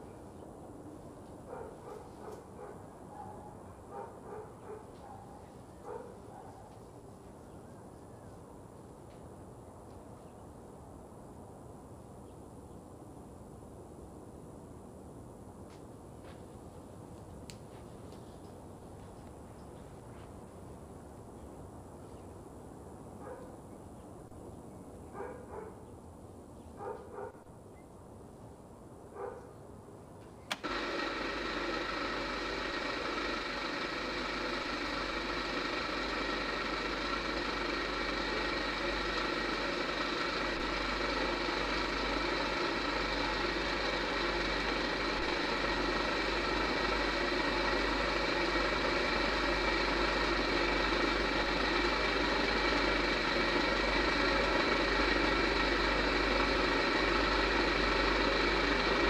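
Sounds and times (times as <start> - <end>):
machine mechanical hum: 30.0 - 59.0.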